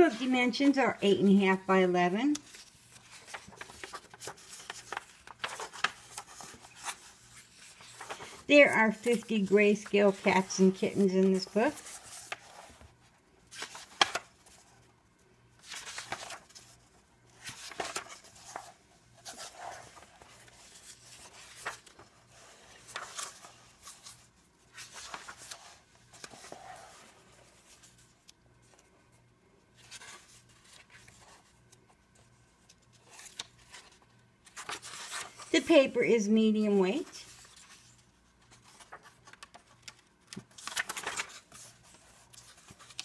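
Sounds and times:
paper pages turning: 0:01.6 - 0:14.8, 0:15.6 - 0:43.0.

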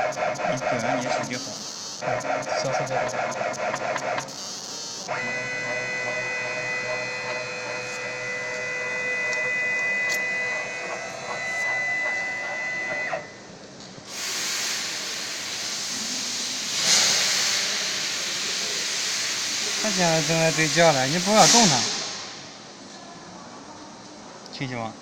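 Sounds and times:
laser machine electronic whine: 0:00.0 - 0:13.4
loud even hiss: 0:14.1 - 0:22.6.

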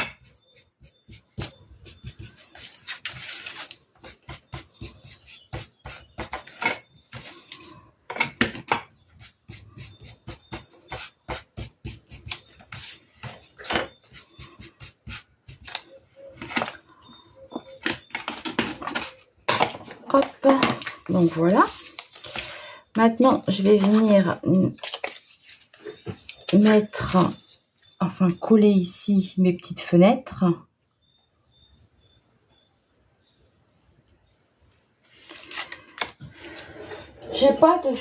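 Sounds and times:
ink pad scuffing on paper: 0:00.3 - 0:07.7, 0:21.1 - 0:22.5, 0:23.1 - 0:27.4.

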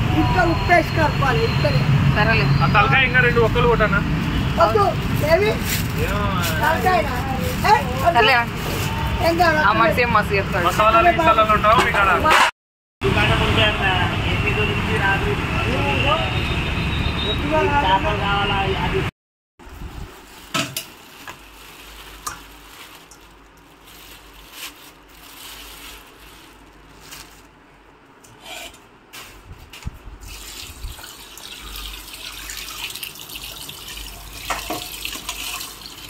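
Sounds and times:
tap water running and splashing: 0:30.2 - 0:36.0.

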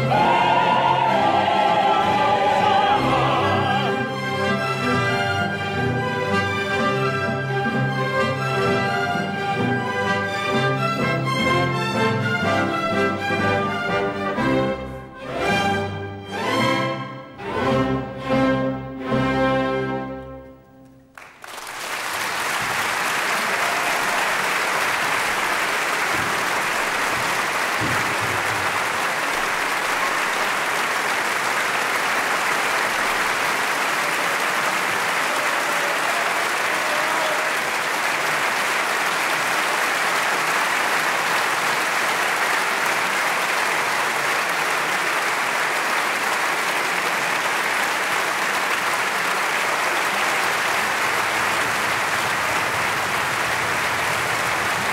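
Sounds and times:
audience applauding: 0:00.0 - 0:07.1, 0:20.8 - 0:54.9.

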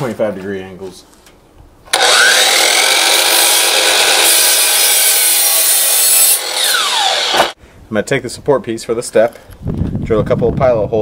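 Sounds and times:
miter saw motor whine: 0:01.9 - 0:07.6
saw blade cutting wood: 0:01.9 - 0:07.6.

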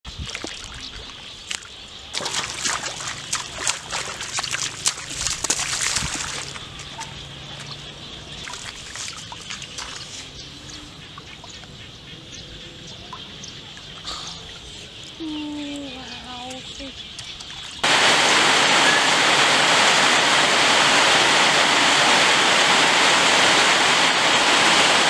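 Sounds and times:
splashing in muddy water: 0:00.1 - 0:11.6
water trickling: 0:00.1 - 0:11.9, 0:13.0 - 0:19.4.

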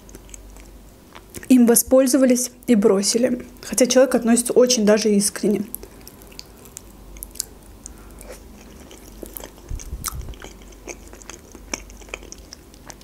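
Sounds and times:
person chewing: 0:00.0 - 0:01.5, 0:05.7 - 0:13.0.

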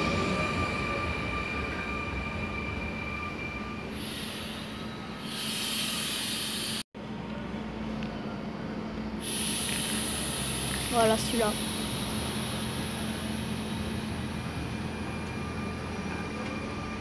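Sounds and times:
electric train passing: 0:00.0 - 0:17.0
train whine: 0:00.0 - 0:17.0
hiss: 0:04.0 - 0:06.8, 0:09.2 - 0:14.0.

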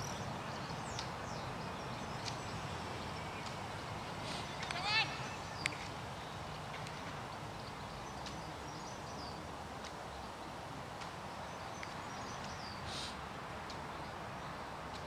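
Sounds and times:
outdoor background noise: 0:00.0 - 0:15.0
small birds chirping: 0:00.0 - 0:15.0
short hiss: 0:04.2 - 0:04.6, 0:12.8 - 0:13.2.

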